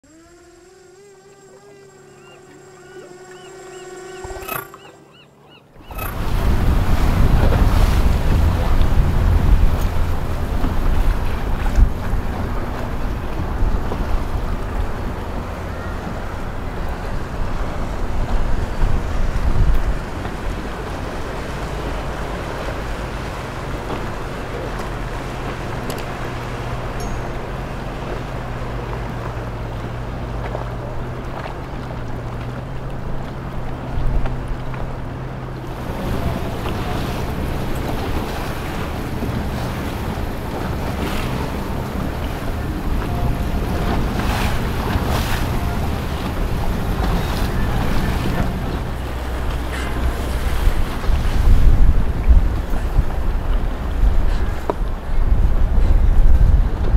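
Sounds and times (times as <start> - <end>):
motorboat engine: 0.0 - 56.9
water rushing: 0.0 - 56.9
wind buffeting microphone: 5.8 - 56.9.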